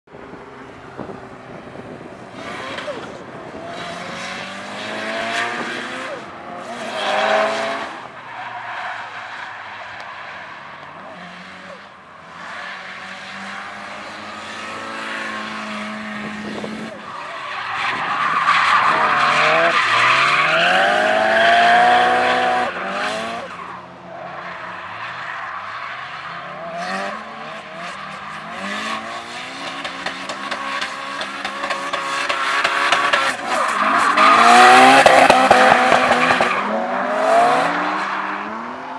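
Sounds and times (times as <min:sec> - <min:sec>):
car engine revving: 0:17.7 - 0:23.7, 0:26.2 - 0:38.9.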